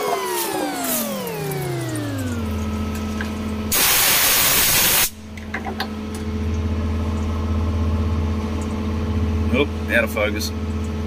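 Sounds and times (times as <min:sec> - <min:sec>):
loud hiss: 0:03.7 - 0:05.2.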